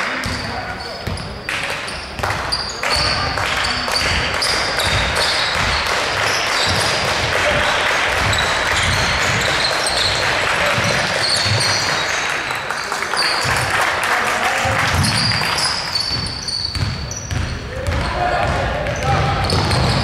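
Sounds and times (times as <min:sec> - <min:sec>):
sneaker squeaks: 0:00.2 - 0:13.7, 0:14.9 - 0:20.0
basketball bouncing: 0:03.9 - 0:12.1, 0:14.6 - 0:20.0
players shouting: 0:17.6 - 0:20.0.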